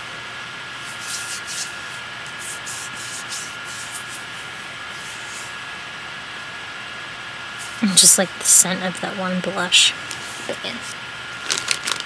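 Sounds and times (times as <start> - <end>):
soft scratchy rustles: 0.8 - 5.6.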